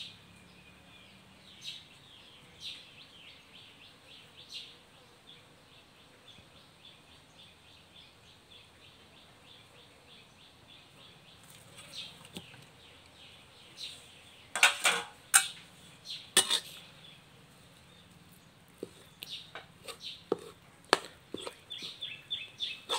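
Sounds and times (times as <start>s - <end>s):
scraping and clattering in wok: 14.6s - 15.6s, 16.4s - 16.9s, 19.6s - 21.6s.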